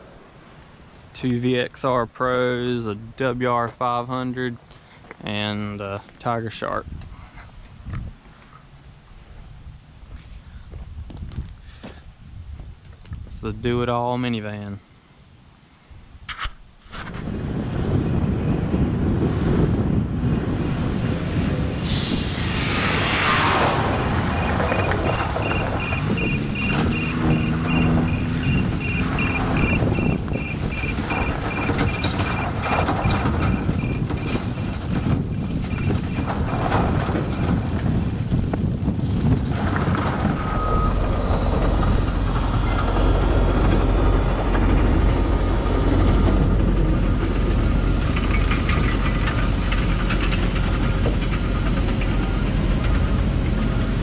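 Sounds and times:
wind on microphone: 6.8s - 8.4s, 9.4s - 13.7s, 16.8s - 54.0s
tyre and road noise: 16.3s - 54.0s
deep steady rumble: 17.2s - 54.0s
knocks and rattles: 23.9s - 53.9s.

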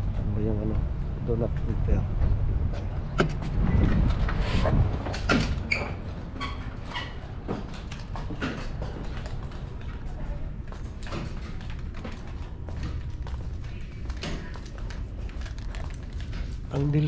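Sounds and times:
wind rumble on microphone: 0.0s - 6.4s
footsteps: 2.2s - 16.9s
microphone handling noise: 2.6s - 5.2s.

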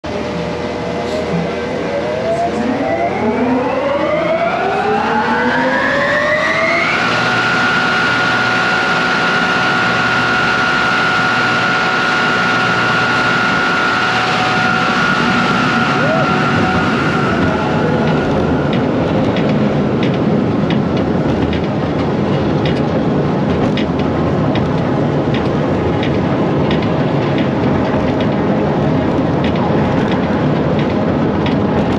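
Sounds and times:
electric motor whining: 1.8s - 19.3s.

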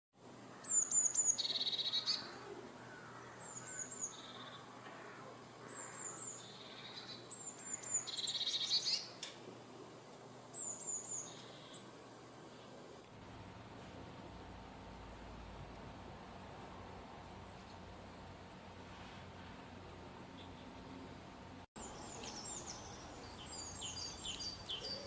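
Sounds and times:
blue tit singing: 0.6s - 2.4s, 5.7s - 9.2s, 21.8s - 25.0s.

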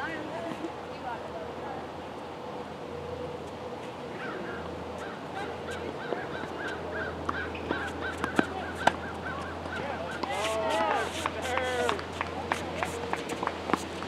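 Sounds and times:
tennis ball struck and bouncing: 7.2s - 10.5s, 11.1s - 14.0s.

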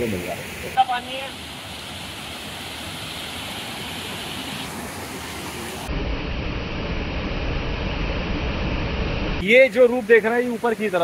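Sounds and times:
waterfall rushing over rocks: 0.0s - 5.9s.

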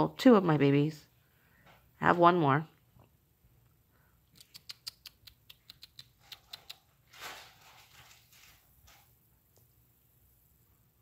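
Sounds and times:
sharp clicks: 4.3s - 6.8s.

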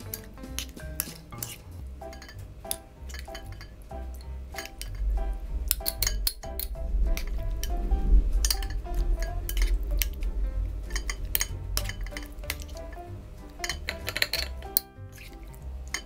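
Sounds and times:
background music: 0.0s - 16.0s
metal spoon scraping glass jar: 0.1s - 2.4s, 3.1s - 3.7s, 4.6s - 5.0s, 8.4s - 10.2s, 10.9s - 13.0s, 13.6s - 16.0s.

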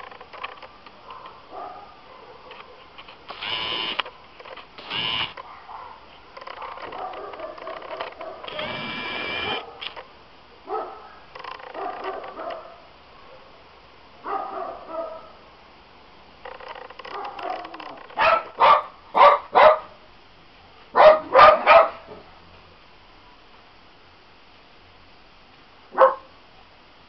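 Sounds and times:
dogs yapping and yelping: 5.4s - 8.5s, 11.7s - 12.8s, 17.1s - 19.8s.

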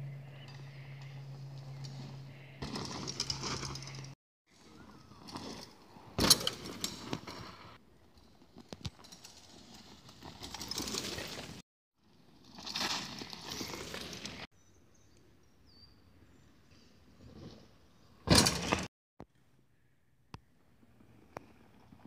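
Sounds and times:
bike tyres on dirt: 0.2s - 14.5s, 16.3s - 18.9s, 20.5s - 22.0s
bike landing thud: 2.6s - 4.0s, 5.3s - 7.6s, 18.2s - 18.9s.

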